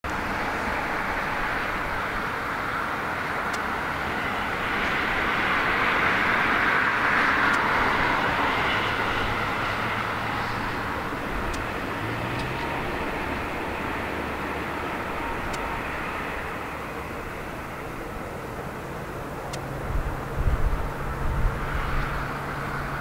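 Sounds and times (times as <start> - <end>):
jet engines hiss and rumble: 0.0 - 23.0.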